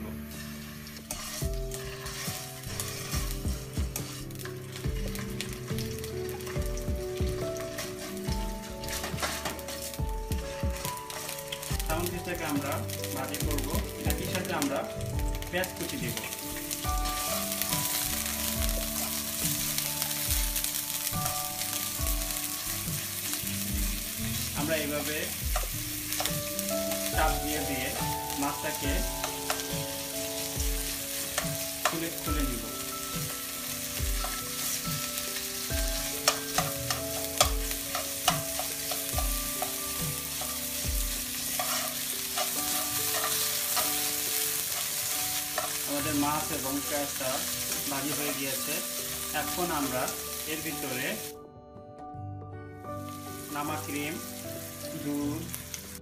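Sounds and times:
fish sizzling in frying pan: 0.0s - 51.4s, 52.8s - 56.0s
soft background music: 0.0s - 56.0s
tongs clicking on pan: 29.2s - 29.7s, 31.3s - 32.1s, 36.0s - 39.8s, 41.5s - 46.0s.

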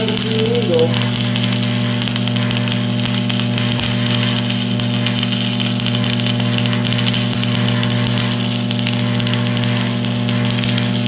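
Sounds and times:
low hum: 0.0s - 2.0s
welding arc crackling: 0.0s - 11.0s.

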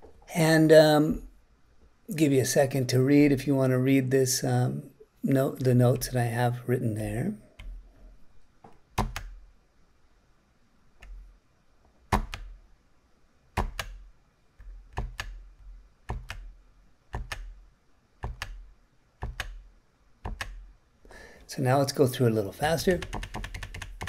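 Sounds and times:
computer keyboard key presses: 9.0s - 9.4s, 12.1s - 12.5s, 13.6s - 14.0s, 14.6s - 15.4s, 16.1s - 16.5s, 17.1s - 17.5s, 18.2s - 18.6s, 19.2s - 19.6s, 20.2s - 20.6s, 22.9s - 24.0s.

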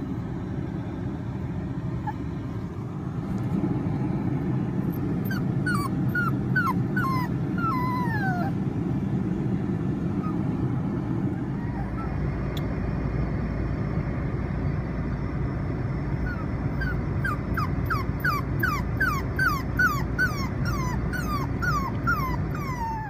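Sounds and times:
car road rumble inside cabin: 0.0s - 23.0s
puppy whimpering: 2.0s - 2.4s, 4.9s - 8.6s, 10.1s - 10.6s, 11.3s - 12.2s, 16.2s - 23.0s.

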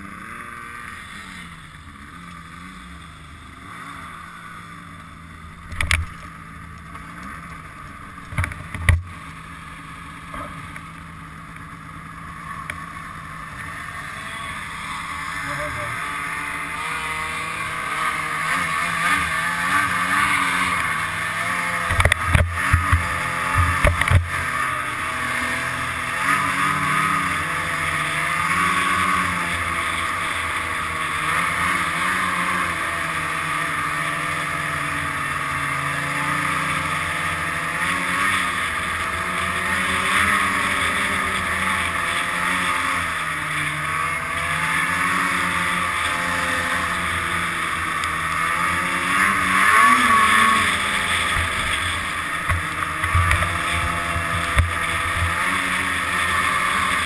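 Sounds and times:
snowmobile engine: 0.0s - 57.0s.

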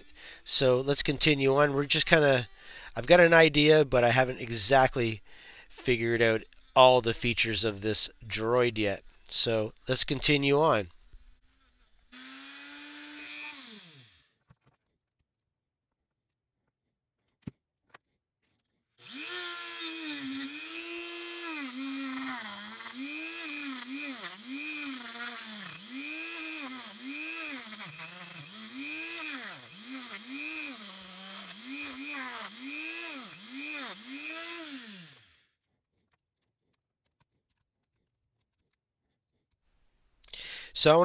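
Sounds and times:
high-speed power tool whine: 12.2s - 14.3s, 19.0s - 35.5s.

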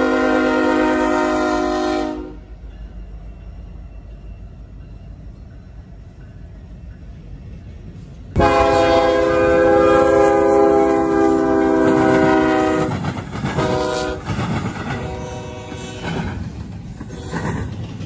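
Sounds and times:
locomotive air horn: 0.0s - 2.5s, 8.4s - 14.3s, 14.9s - 16.2s
rumble of passing train: 0.0s - 18.0s.

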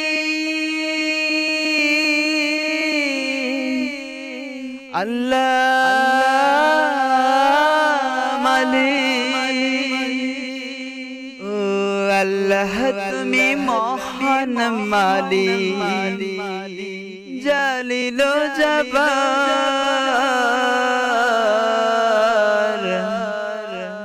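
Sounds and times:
low vocal drone: 0.0s - 17.5s.

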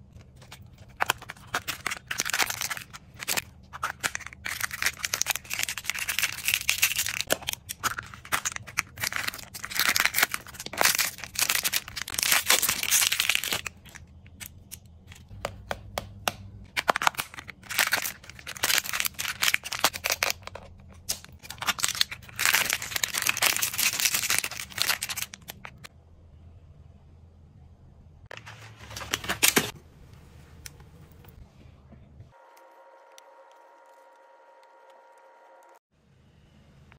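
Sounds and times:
plastic wrappers crinkling and tearing: 0.0s - 15.3s, 16.7s - 25.9s.

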